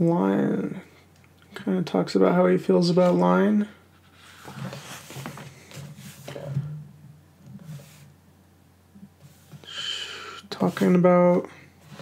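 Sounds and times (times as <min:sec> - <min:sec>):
book pages rustling: 0:04.0 - 0:06.5.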